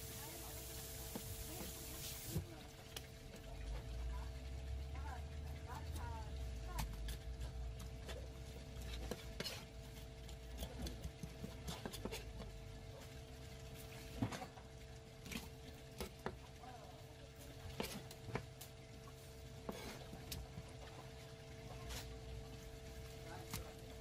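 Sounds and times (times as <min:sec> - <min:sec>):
steady hum: 0:00.0 - 0:24.0
knife filleting fish: 0:05.8 - 0:13.2.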